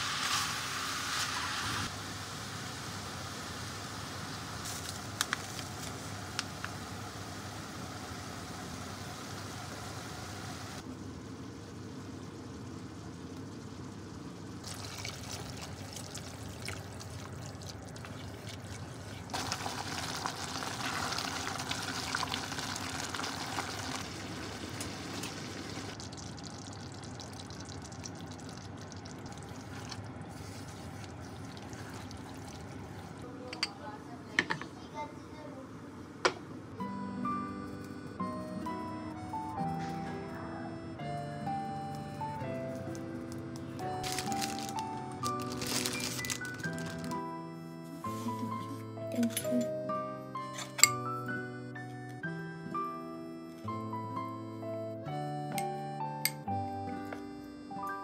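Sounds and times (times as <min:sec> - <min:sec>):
cooking noise from pot: 0:13.2 - 0:34.8
liquid poured into a pot: 0:14.6 - 0:33.2.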